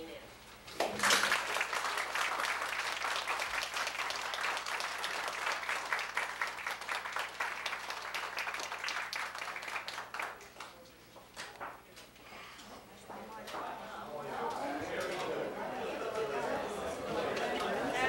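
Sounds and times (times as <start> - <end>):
audience applauding: 0.8 - 10.8, 14.8 - 18.0.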